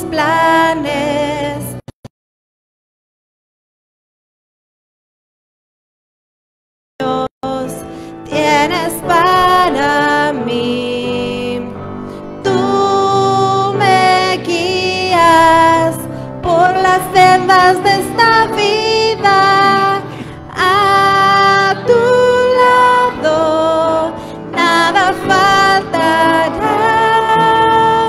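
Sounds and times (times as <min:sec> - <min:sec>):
woman singing a hymn: 0:00.0 - 0:01.8, 0:07.0 - 0:11.8, 0:12.4 - 0:28.0.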